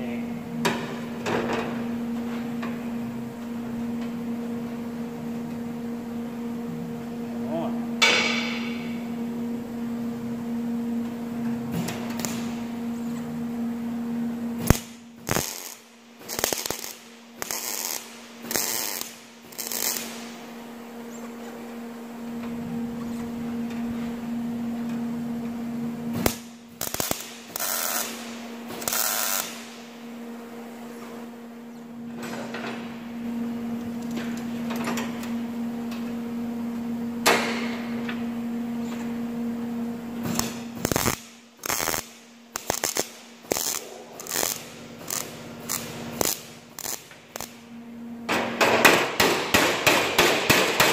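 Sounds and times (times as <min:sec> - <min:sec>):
steady electrical hum: 0:00.0 - 0:50.9
welder sputtering bursts: 0:15.2 - 0:20.2, 0:26.8 - 0:28.2, 0:40.4 - 0:47.6.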